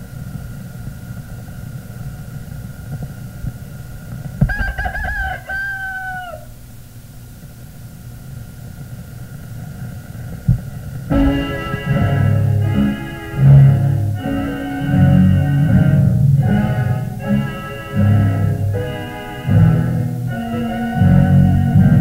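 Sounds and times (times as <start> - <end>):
old film soundtrack hiss and rumble: 0.0 - 22.0
rooster crowing: 4.4 - 6.6.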